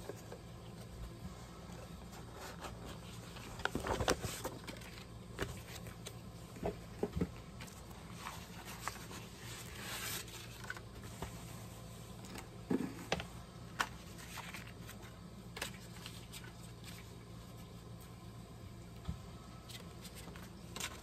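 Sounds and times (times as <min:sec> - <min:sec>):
paper rustling: 0:01.6 - 0:06.2, 0:07.6 - 0:11.5, 0:13.0 - 0:17.9, 0:19.7 - 0:21.0.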